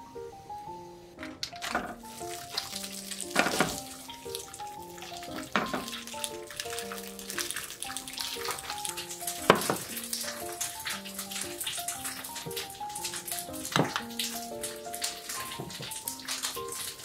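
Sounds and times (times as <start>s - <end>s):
gentle background music: 0.0s - 17.0s
food clattering into pan: 1.2s - 4.0s, 5.4s - 6.1s, 9.4s - 10.0s
sausage sizzling in oil: 1.6s - 17.0s.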